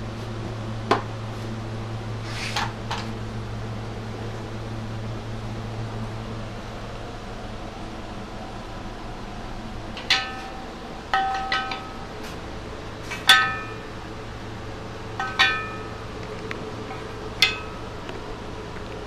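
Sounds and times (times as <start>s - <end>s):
knocks on metal wheel rim: 10.0s - 12.0s, 13.2s - 13.9s.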